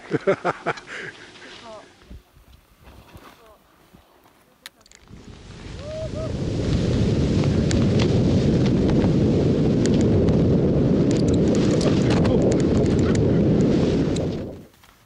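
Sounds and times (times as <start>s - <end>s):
wind rushing over microphone: 5.0s - 14.7s.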